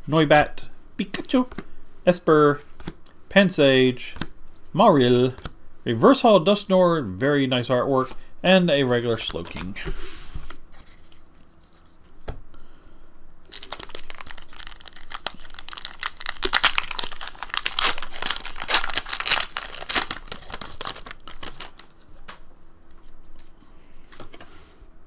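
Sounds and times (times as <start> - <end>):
foil wrapper tearing and crinkling: 13.5 - 21.9.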